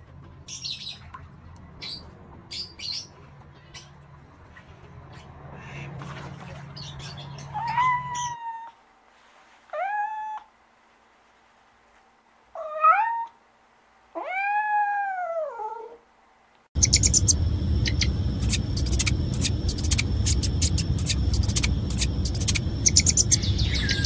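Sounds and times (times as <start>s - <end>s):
cat meowing: 7.6s - 8.8s, 9.7s - 10.5s, 12.6s - 13.4s, 14.2s - 16.0s.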